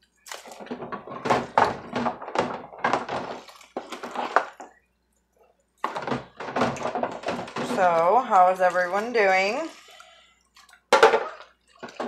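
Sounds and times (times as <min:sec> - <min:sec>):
dishes knocking in sink: 0:10.9 - 0:12.0.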